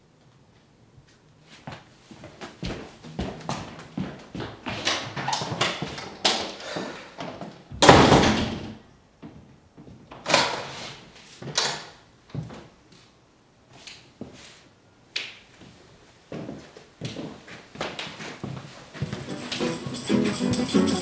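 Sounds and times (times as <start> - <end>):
footsteps on wooden floor: 1.7 - 6.1, 16.3 - 20.1
door slamming shut: 7.8 - 8.7.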